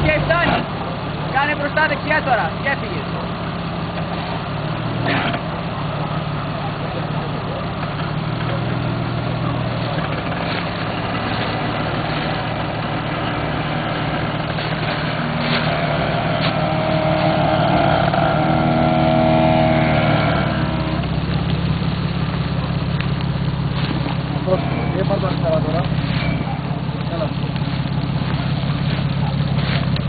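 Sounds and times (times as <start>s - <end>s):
engine straining under load: 0.0s - 30.0s
branches cracking: 9.8s - 30.0s.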